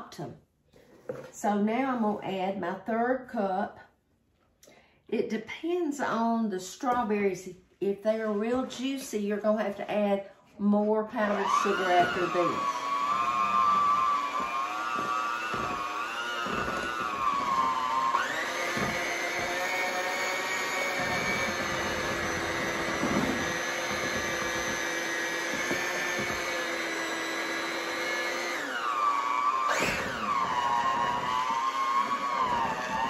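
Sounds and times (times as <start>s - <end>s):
electric mixer motor whine: 11.1s - 33.0s.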